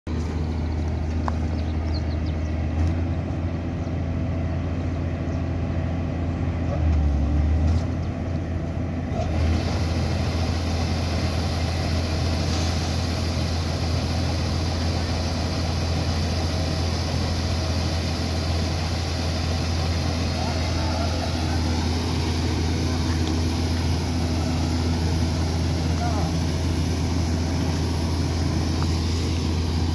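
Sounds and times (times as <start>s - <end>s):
diesel engines droning: 0.1s - 29.9s
higher hiss: 9.4s - 29.9s.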